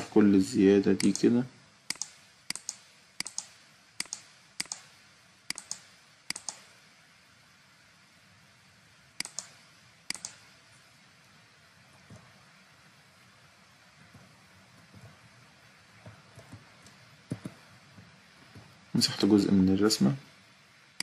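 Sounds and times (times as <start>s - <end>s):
computer mouse clicks: 1.0s - 1.3s, 1.9s - 4.9s, 5.5s - 6.7s, 9.2s - 10.4s.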